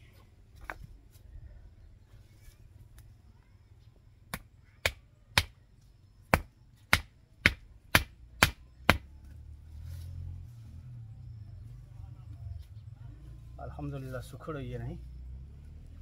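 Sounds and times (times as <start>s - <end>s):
sharp hand tool strikes: 4.3s - 5.6s, 6.3s - 9.1s.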